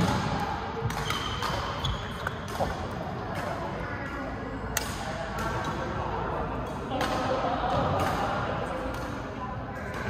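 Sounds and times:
rackets striking shuttlecock: 0.0s - 3.7s, 6.6s - 9.2s.

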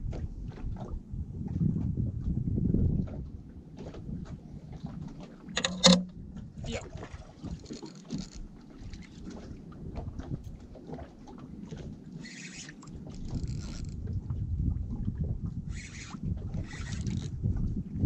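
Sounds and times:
water lapping against boat hull: 0.0s - 18.0s
wind rumbling on microphone: 0.0s - 18.0s
fishing reel clicks: 5.6s - 6.1s, 12.2s - 14.0s, 15.7s - 17.3s.

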